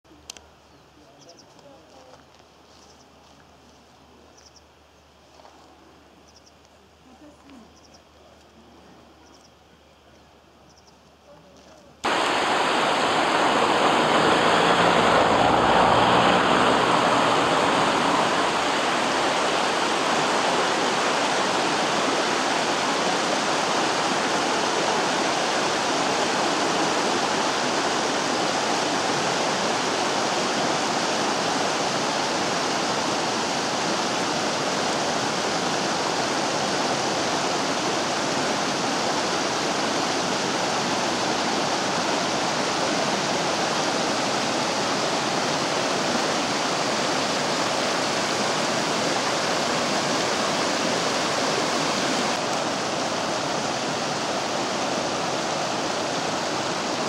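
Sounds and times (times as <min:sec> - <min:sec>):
river rushing over stones: 0:12.0 - 0:57.0.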